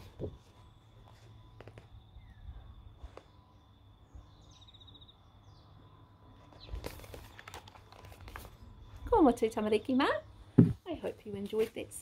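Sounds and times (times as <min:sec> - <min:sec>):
book rustling and knocking: 0:06.5 - 0:08.6, 0:10.6 - 0:10.8.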